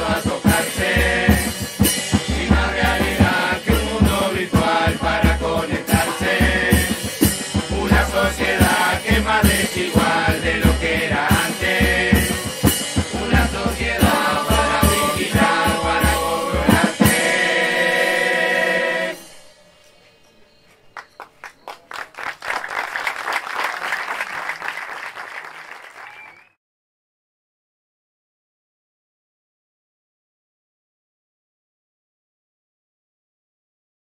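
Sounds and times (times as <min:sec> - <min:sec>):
choir singing: 0:00.0 - 0:20.6
audience clapping and applauding: 0:20.7 - 0:26.6.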